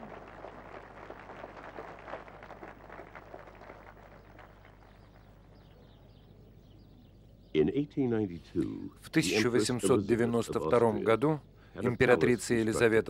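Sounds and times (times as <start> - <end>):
audience applauding: 0.0 - 5.4.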